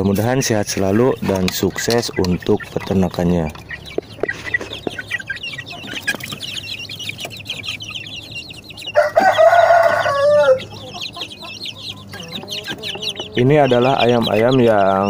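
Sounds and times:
chicks peeping: 0:00.0 - 0:15.0
cockerel crowing: 0:08.7 - 0:15.0.

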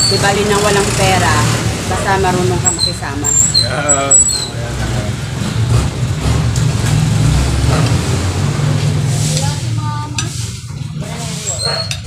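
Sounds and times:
vehicle engine rumbling: 0:00.0 - 0:12.0.

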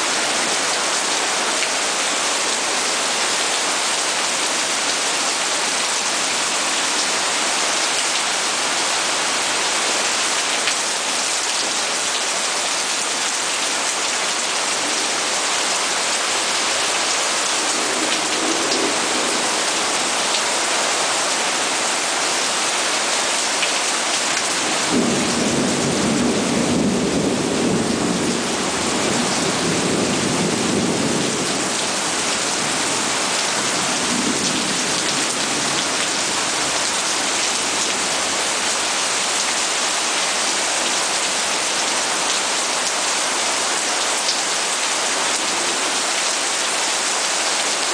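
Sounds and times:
heavy rain pouring: 0:00.0 - 0:47.9.

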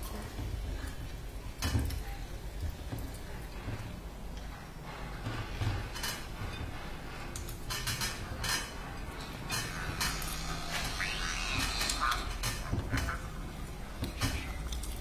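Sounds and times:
peanut kernels clinking and crackling: 0:07.3 - 0:15.0.

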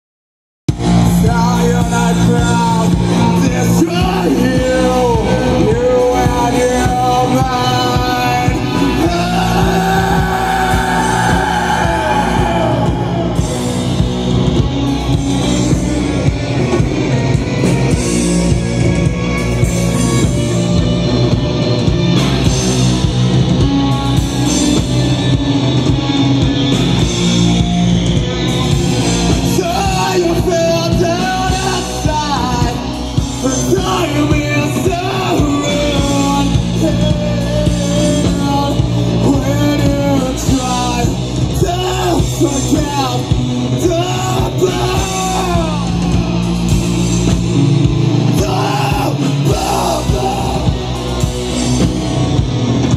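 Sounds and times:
bass guitar: 0:00.7 - 0:52.9
electric guitar: 0:00.7 - 0:52.9
rock band playing loudly: 0:00.7 - 0:52.9
person singing: 0:00.9 - 0:13.8, 0:29.2 - 0:47.3, 0:48.1 - 0:51.4.

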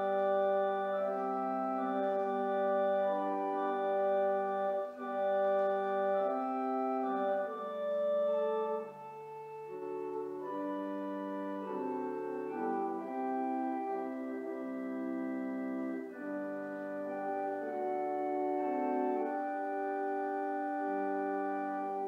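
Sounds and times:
church organ chords: 0:00.0 - 0:22.0.

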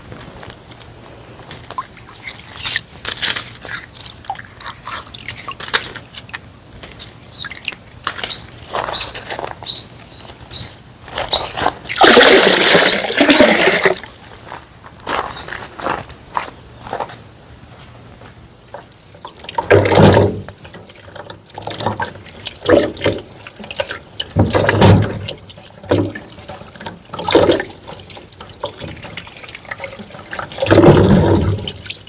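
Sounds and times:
water drips and plinks: 0:01.5 - 0:08.5, 0:18.7 - 0:32.0
rush of water in stone basin: 0:11.9 - 0:14.2, 0:18.8 - 0:32.0.

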